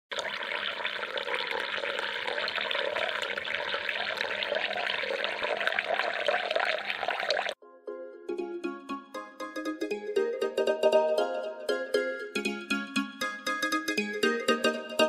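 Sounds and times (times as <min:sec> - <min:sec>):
water trickling and splashing: 0:00.1 - 0:07.6
plucked mandolin music: 0:07.6 - 0:15.0.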